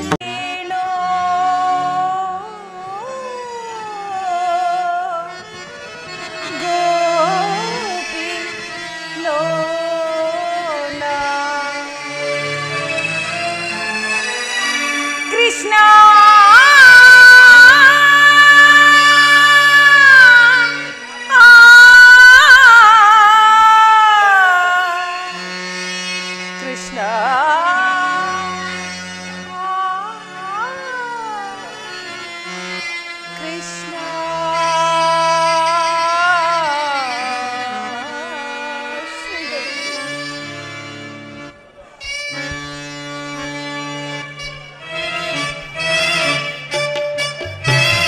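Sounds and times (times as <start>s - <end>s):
slow melody with sliding ornaments: 46.7s - 48.0s.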